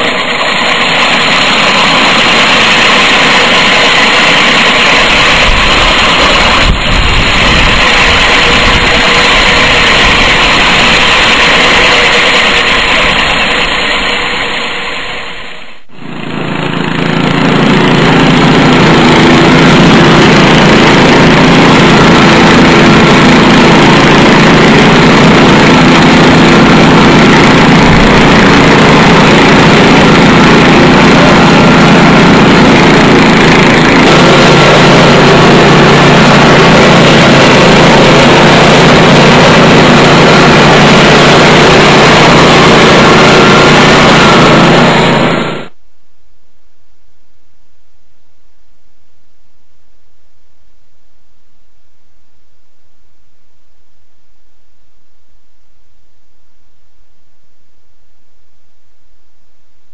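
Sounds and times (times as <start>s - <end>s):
floor grinder grinding concrete: 0.0s - 45.8s
deep machine running: 0.0s - 57.9s.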